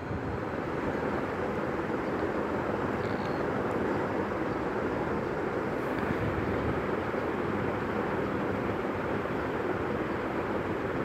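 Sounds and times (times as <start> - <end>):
steady rushing noise: 0.0 - 11.0.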